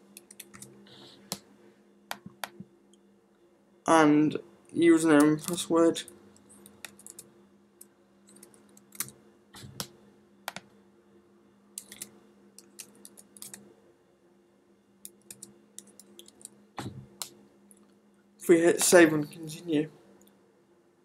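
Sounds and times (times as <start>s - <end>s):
steady low hum: 0.0s - 21.0s
computer keyboard typing: 0.2s - 0.7s, 6.5s - 7.2s, 8.3s - 9.9s, 11.8s - 13.6s, 15.1s - 16.5s.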